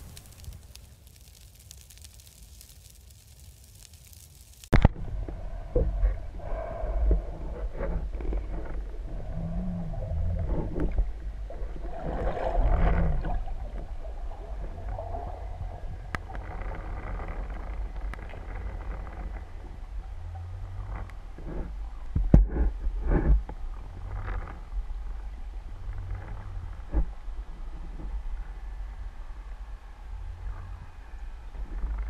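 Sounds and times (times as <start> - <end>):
muffled underwater rumble: 0.0 - 32.0
underwater clicks and knocks: 16.1 - 24.7.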